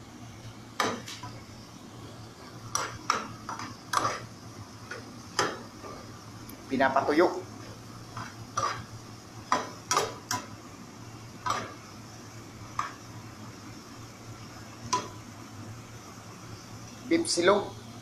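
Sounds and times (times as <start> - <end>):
steady low hum: 0.0 - 18.0
spatula scraping frying pan: 2.3 - 6.2, 7.5 - 10.6, 11.3 - 12.0.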